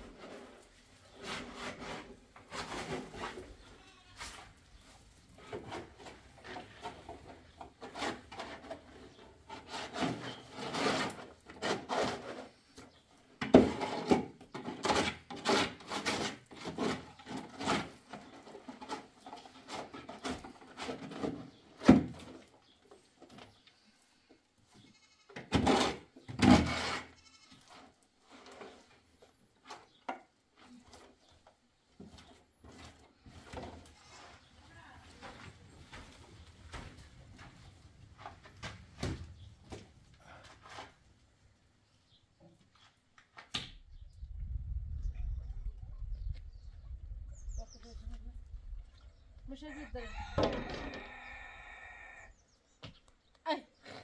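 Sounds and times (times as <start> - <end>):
trowel scraping plaster in basin: 0.0 - 3.6, 5.4 - 13.0, 13.6 - 21.4, 25.5 - 28.9.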